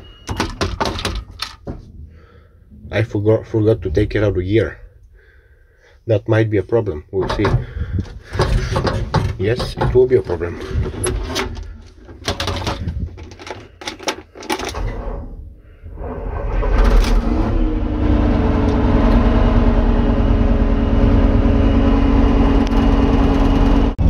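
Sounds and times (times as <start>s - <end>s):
diesel engine starting and running: 7.0s - 24.0s.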